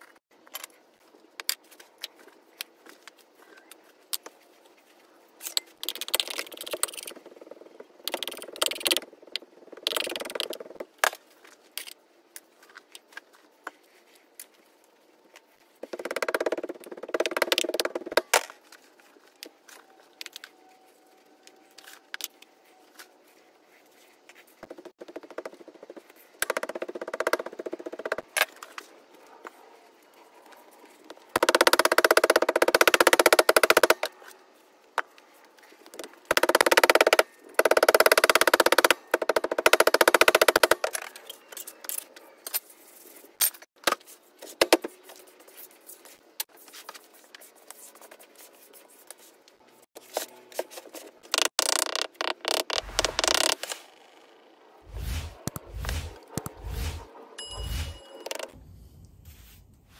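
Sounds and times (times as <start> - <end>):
sand crunching: 54.9 - 58.0
metal scoop scraping sand: 54.9 - 58.2.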